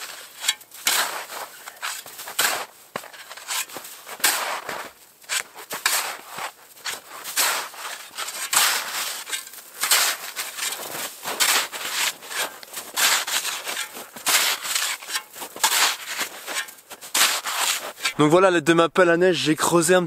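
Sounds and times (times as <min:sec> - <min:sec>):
snow shovel scraping snow: 0:00.0 - 0:18.2.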